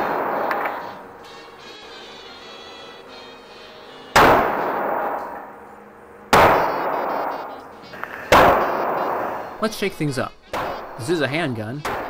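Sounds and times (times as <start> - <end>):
pistol shots echoing indoors: 0.0 - 2.0, 4.1 - 5.6, 6.3 - 9.6, 10.5 - 11.0, 11.8 - 12.0.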